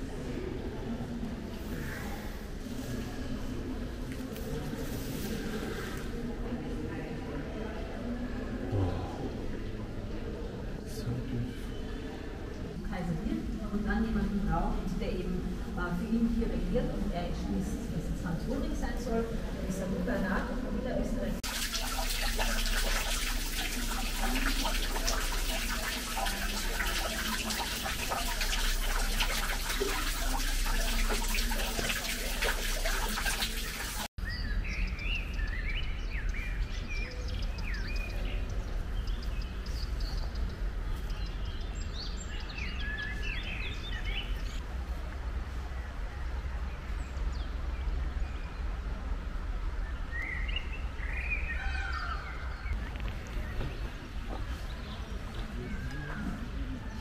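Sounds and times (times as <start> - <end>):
fountain water splashing: 21.4 - 34.1.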